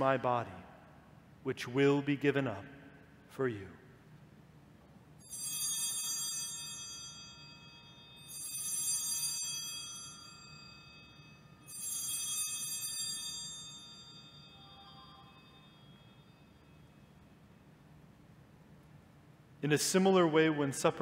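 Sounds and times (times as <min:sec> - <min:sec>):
altar bells ringing: 0:05.2 - 0:17.3.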